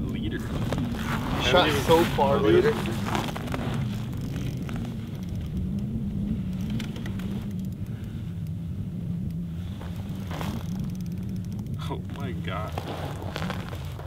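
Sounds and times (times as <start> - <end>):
low engine hum: 0.0 - 14.0
faint clicks: 3.2 - 8.6, 9.2 - 12.3.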